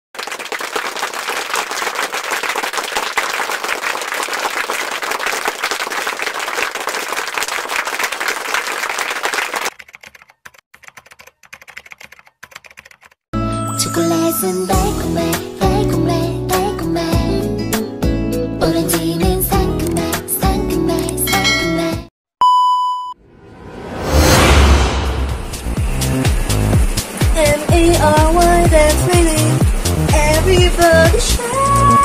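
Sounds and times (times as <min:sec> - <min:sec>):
sparse typing clicks: 0:09.7 - 0:13.2.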